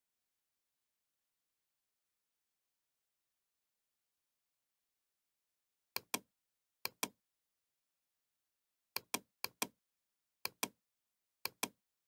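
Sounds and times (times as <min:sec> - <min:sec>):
computer mouse clicks: 0:06.0 - 0:06.3, 0:06.9 - 0:07.2, 0:09.0 - 0:09.8, 0:10.5 - 0:10.8, 0:11.4 - 0:11.8.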